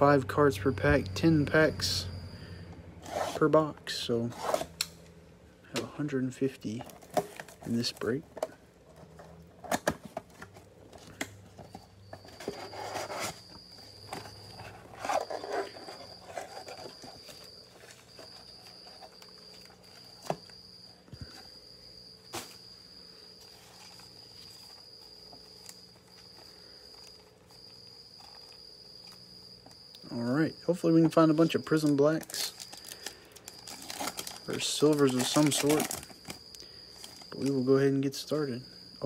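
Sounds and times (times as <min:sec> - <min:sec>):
cricket chirping: 0:00.0 - 0:39.0
cardboard and plastic wrap rustling: 0:06.3 - 0:20.6, 0:22.2 - 0:29.2, 0:31.4 - 0:37.7.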